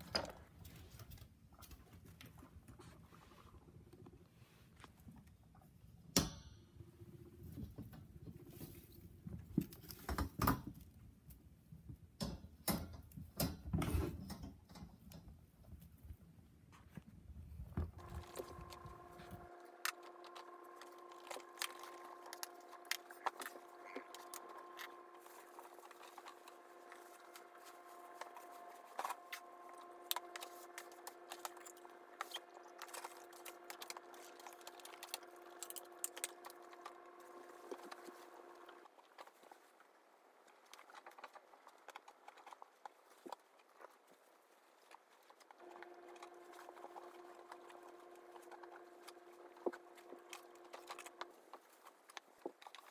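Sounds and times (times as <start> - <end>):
steady humming tone: 17.7 - 39.0.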